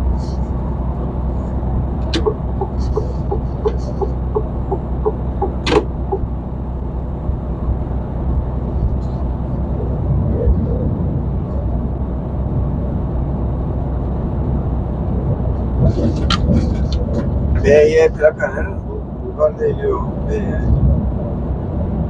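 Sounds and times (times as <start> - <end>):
truck engine and tyre drone: 0.0 - 22.0
even ticking: 2.0 - 6.3.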